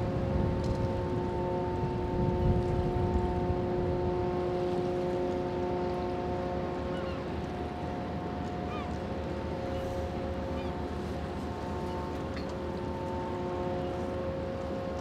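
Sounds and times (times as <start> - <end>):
ship engines droning: 0.0 - 15.0.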